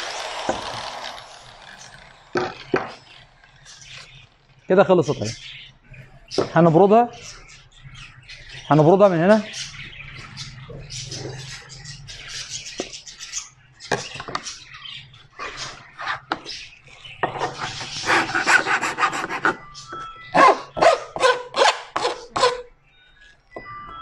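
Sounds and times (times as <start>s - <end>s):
file rasping on metal edge: 17.6s - 19.6s.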